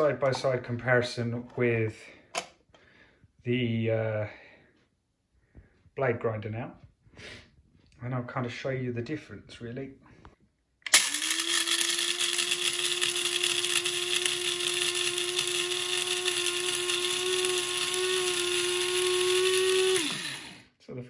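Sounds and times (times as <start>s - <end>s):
coffee grinder grinding beans: 10.9s - 20.8s.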